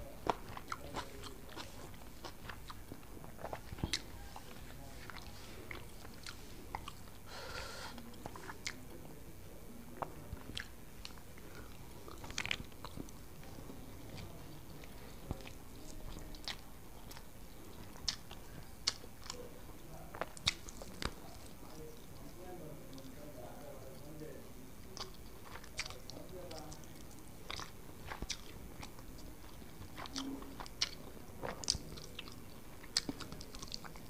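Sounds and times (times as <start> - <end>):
chewing: 0.0 - 9.2, 9.9 - 34.0
fingers mixing rice on leaf: 0.1 - 8.8.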